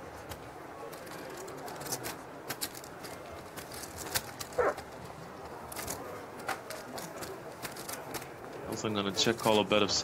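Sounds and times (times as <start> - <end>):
poker chips clicking: 0.9 - 5.1.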